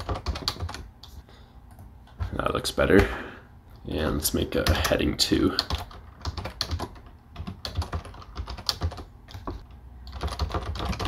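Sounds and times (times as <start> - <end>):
computer keyboard typing: 0.0 - 0.9, 4.6 - 11.0.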